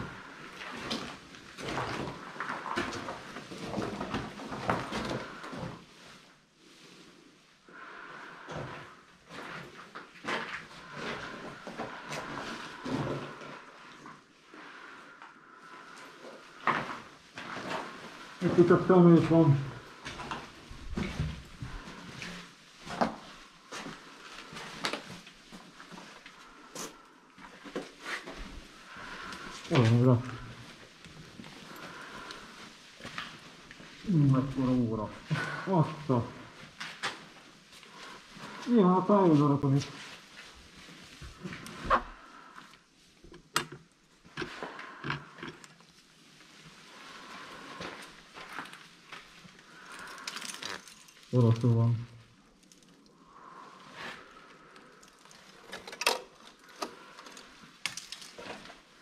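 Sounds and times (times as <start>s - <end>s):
irregular knocks and crunches: 54.2s - 59.0s.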